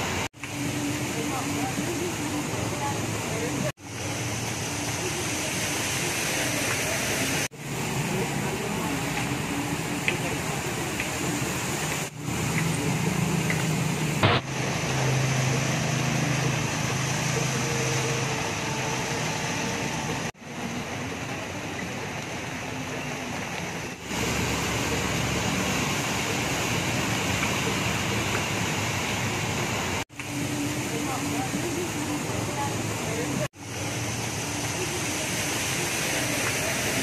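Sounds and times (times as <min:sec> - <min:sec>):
wheels splashing through floodwater: 0:00.0 - 0:37.0
motorbike engines running: 0:06.5 - 0:35.5.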